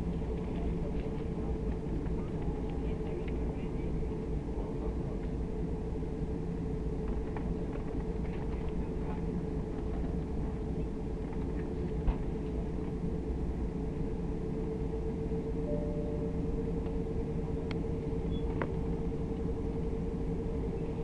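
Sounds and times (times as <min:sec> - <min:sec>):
aircraft cabin rumble while taxiing: 0:00.0 - 0:21.0
steady hum: 0:12.6 - 0:21.0.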